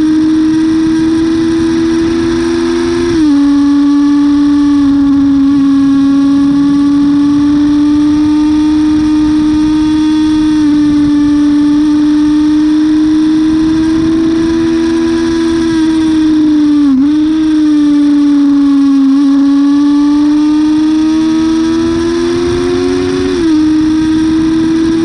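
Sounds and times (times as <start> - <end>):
motorcycle engine shifting gears: 0.0 - 25.0
wind noise: 0.0 - 25.0.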